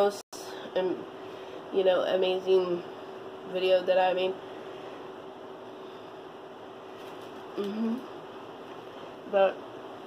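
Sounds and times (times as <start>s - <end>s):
closed-mouth hum: 4.4s - 10.0s.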